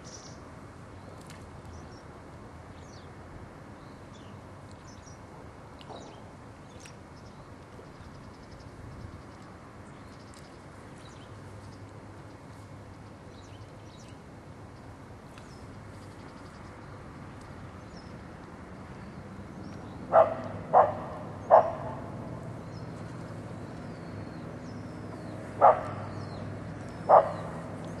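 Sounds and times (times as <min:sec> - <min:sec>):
dog barking: 0:20.1 - 0:22.0, 0:25.6 - 0:26.1, 0:27.1 - 0:27.5.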